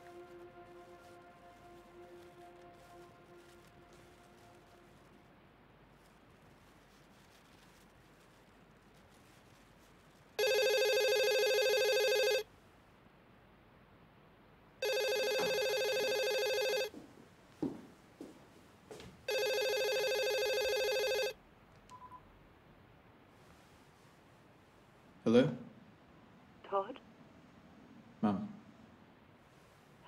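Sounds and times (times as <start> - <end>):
telephone ringing: 10.4 - 12.5, 14.8 - 16.9, 19.3 - 21.4.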